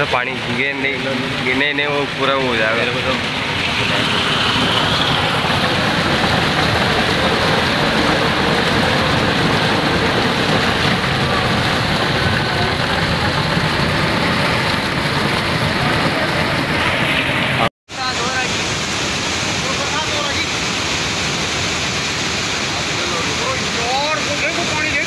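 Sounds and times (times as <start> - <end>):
floodwater rushing: 0.0 - 25.0
heavy rain: 0.0 - 25.0.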